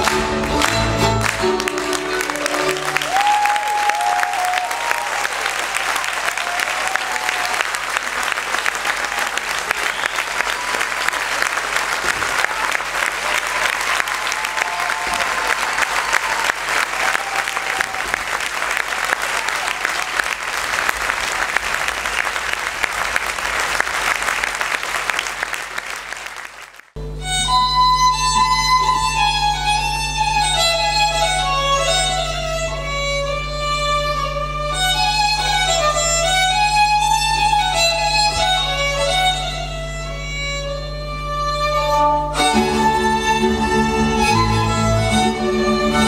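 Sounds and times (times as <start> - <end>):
fiddle music: 0.0 - 3.6, 27.0 - 46.0
audience applause: 0.0 - 27.0.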